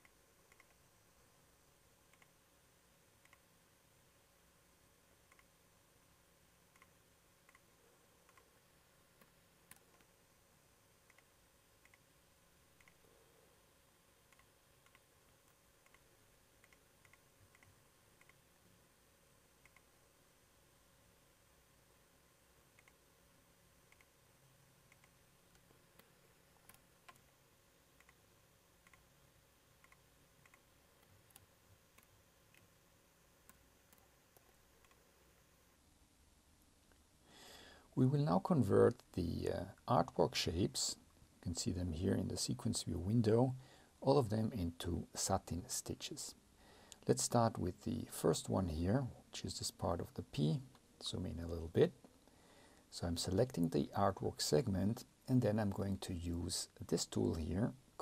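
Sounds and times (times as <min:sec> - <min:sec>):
computer mouse clicks: 0:00.0 - 0:00.8, 0:02.1 - 0:02.4, 0:03.2 - 0:03.5, 0:05.3 - 0:05.5, 0:06.7 - 0:08.6, 0:09.2 - 0:10.1, 0:11.0 - 0:12.1, 0:12.8 - 0:13.1, 0:14.3 - 0:18.4, 0:19.6 - 0:20.0, 0:22.7 - 0:23.0, 0:23.9 - 0:24.2, 0:24.9 - 0:27.4, 0:28.0 - 0:29.1, 0:29.8 - 0:32.8, 0:33.4 - 0:35.1.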